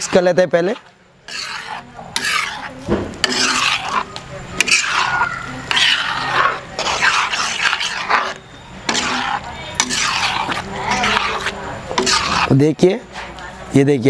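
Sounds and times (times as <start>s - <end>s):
utensil scraping through food: 0.0s - 13.5s
dull thump: 2.8s - 3.2s.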